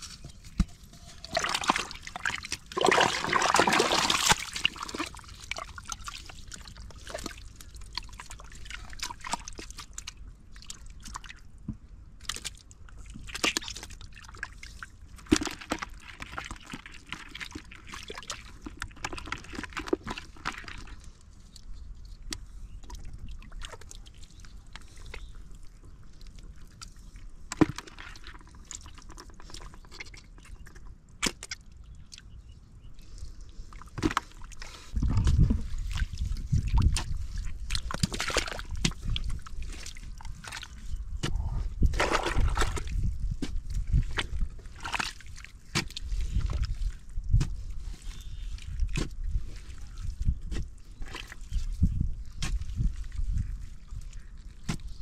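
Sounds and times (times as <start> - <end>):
hands splashing in muddy water: 0.0 - 11.4, 33.7 - 55.0.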